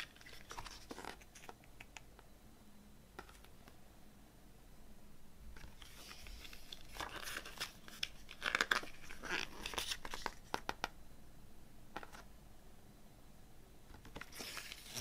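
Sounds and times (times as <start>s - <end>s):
paper pages rustling: 0.0s - 1.6s, 5.6s - 10.7s, 14.0s - 15.0s.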